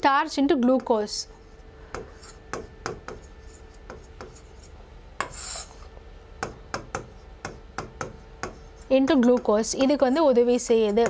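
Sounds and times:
pen tapping and scratching on glass: 0:02.0 - 0:05.4, 0:06.4 - 0:11.0.

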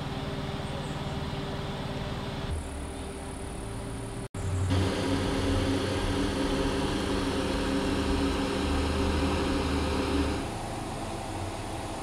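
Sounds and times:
electric motor humming with whine: 0:04.7 - 0:12.0.

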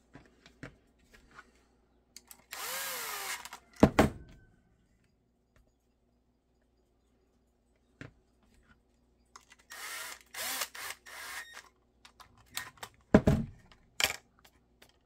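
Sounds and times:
impact driver motor whirring: 0:02.4 - 0:03.6, 0:09.7 - 0:11.7.

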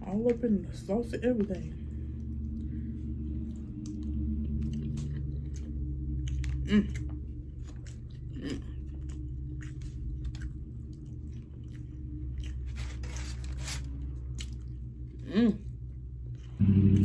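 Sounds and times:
steady low hum: 0:00.0 - 0:17.0
person chewing and smacking: 0:02.2 - 0:13.0, 0:14.2 - 0:17.0.

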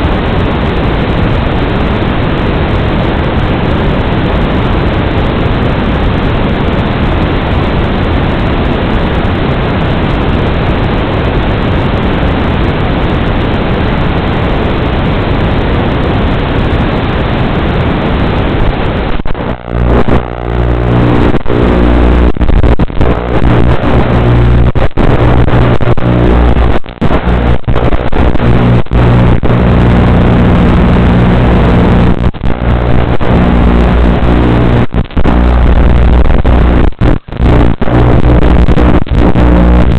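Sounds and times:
loud static hiss: 0:00.0 - 0:39.9
drone motors humming: 0:19.3 - 0:39.9.

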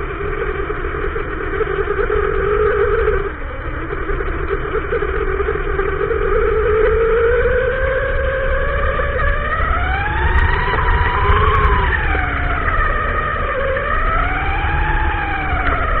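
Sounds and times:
electric motor and gearbox whine: 0:00.0 - 0:16.0
steady low rumble: 0:00.0 - 0:16.0.

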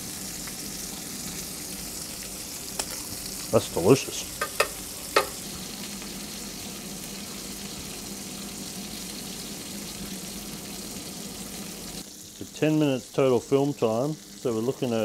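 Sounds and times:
fish sizzling in a pan: 0:00.0 - 0:15.0
sharp pops of frying butter: 0:02.7 - 0:03.0, 0:04.4 - 0:05.4.

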